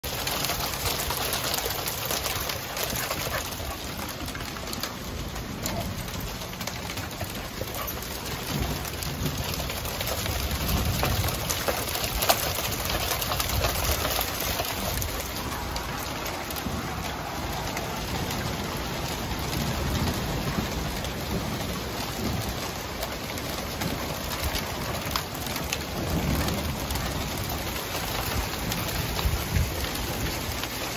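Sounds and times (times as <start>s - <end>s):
hail and rain on wooden deck: 0.0s - 30.9s.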